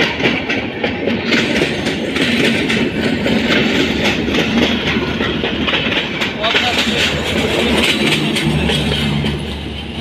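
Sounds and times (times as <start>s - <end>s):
clatter over rail joints: 0.0s - 10.0s
train wheels rumbling on rail: 0.0s - 10.0s.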